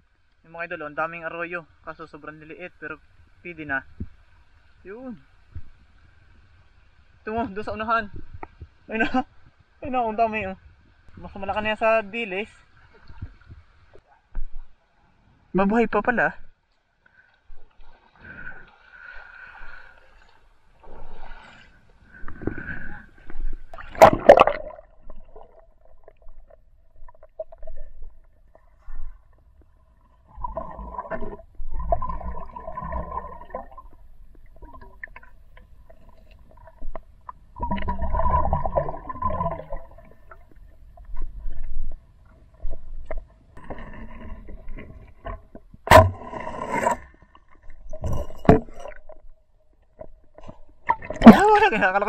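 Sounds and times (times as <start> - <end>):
underwater gurgling and bubbling: 22.1 - 29.2, 30.2 - 49.2.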